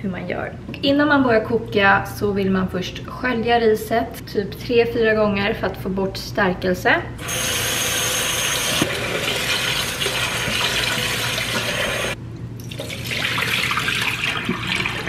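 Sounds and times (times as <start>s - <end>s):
tap water running into pot: 8.8s - 15.0s.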